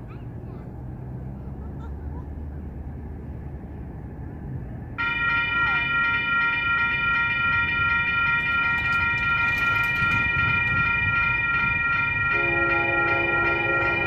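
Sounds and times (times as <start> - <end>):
crossing warning bell ringing: 5.0 - 14.0
locomotive horn: 12.1 - 14.0.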